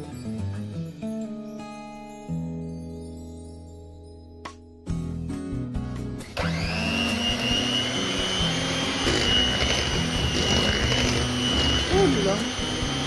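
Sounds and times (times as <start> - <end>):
electric mixer whining: 6.2 - 13.0.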